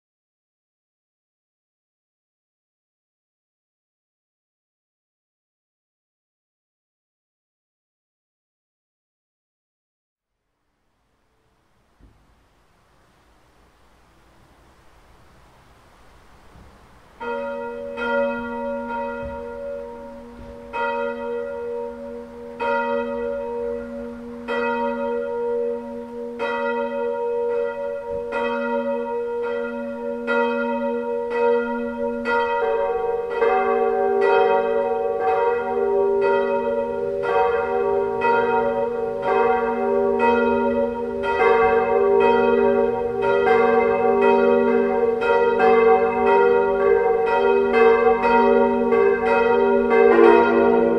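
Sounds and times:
church bells swinging: 0:14.0 - 0:50.9.

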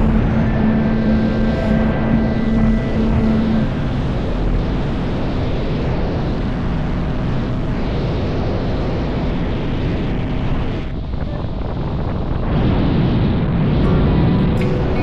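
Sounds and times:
motorboat engine running: 0:00.0 - 0:10.4
wind rushing over microphone: 0:00.0 - 0:15.0.

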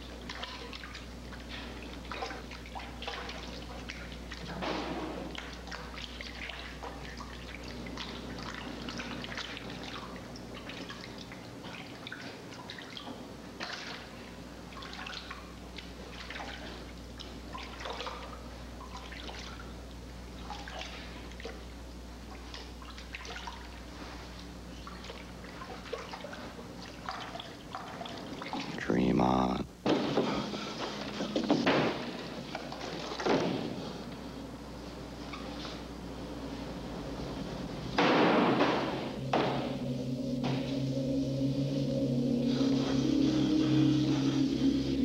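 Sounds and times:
steady low hum: 0:00.0 - 0:45.0
water dripping and trickling: 0:05.3 - 0:19.8, 0:22.4 - 0:23.8, 0:24.8 - 0:28.8.

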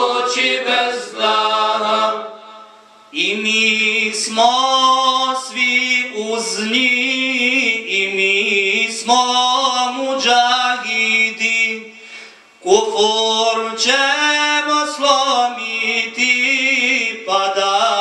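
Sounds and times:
men singing a cappella hymn: 0:00.0 - 0:12.0, 0:12.6 - 0:18.0.

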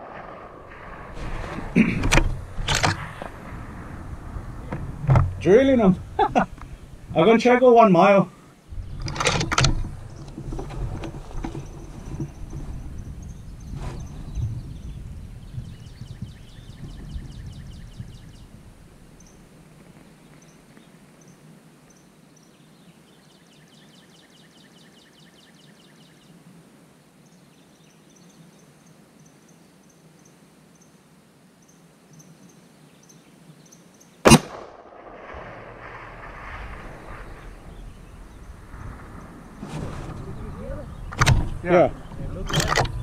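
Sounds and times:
rifle shot with echo: 0:00.0 - 0:05.9, 0:34.2 - 0:39.6.

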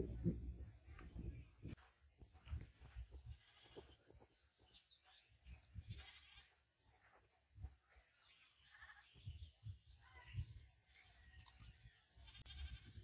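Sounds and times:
goat bleating: 0:02.8 - 0:04.0, 0:05.9 - 0:06.6, 0:08.6 - 0:09.1, 0:12.2 - 0:13.0.

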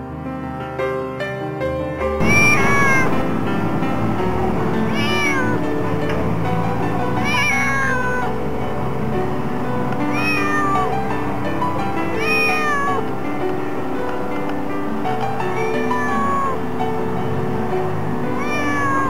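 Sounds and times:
background music: 0:00.0 - 0:19.0
cat meowing: 0:02.2 - 0:03.4, 0:04.8 - 0:05.7, 0:07.2 - 0:08.4, 0:10.0 - 0:11.1, 0:12.0 - 0:13.1, 0:15.4 - 0:16.6, 0:18.3 - 0:19.0.

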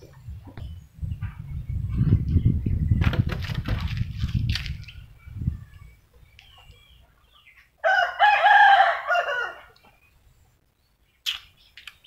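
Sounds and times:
rooster crowing: 0:07.8 - 0:09.8.

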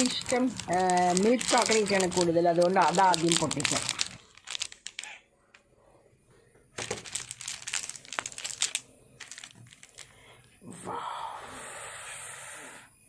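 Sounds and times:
wrapper crinkling: 0:00.0 - 0:05.6, 0:06.8 - 0:10.3.

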